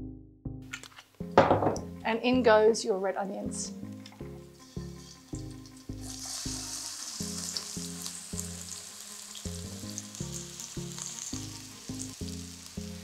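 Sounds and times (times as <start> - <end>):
soft background music: 0.0 - 13.0
onion sizzling in hot oil: 4.6 - 13.0.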